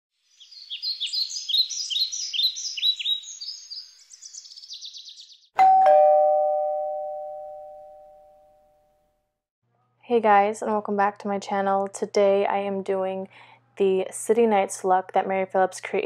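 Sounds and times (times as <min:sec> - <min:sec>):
two-note ding-dong chime: 0:05.6 - 0:08.6.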